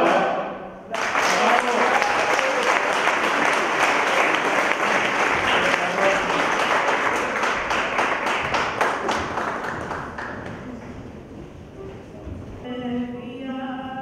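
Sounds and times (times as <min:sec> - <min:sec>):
audience applauding: 0:00.9 - 0:11.0.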